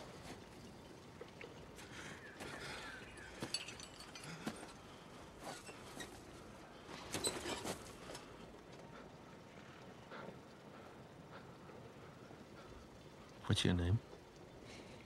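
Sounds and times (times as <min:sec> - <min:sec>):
sharp clinks: 0:03.2 - 0:04.9.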